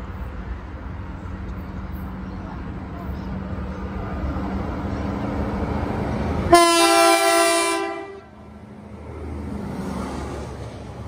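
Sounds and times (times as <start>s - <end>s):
train rumbling: 0.0s - 11.0s
train horn chord: 6.5s - 8.3s.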